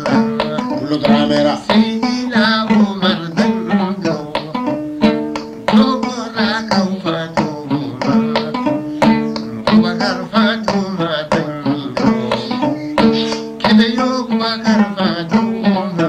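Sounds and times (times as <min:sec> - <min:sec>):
percussion: 0:00.0 - 0:16.0
plucked string instrument: 0:00.0 - 0:16.0.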